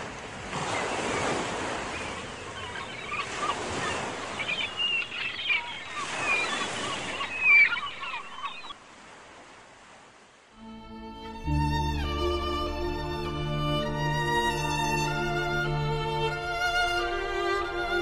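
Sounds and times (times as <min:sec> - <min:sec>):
ocean surf: 0:00.0 - 0:18.0
birds calling: 0:00.6 - 0:08.8.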